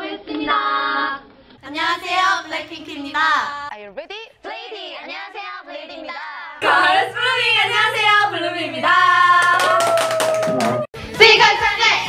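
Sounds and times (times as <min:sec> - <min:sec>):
hand claps: 0:09.4 - 0:10.9.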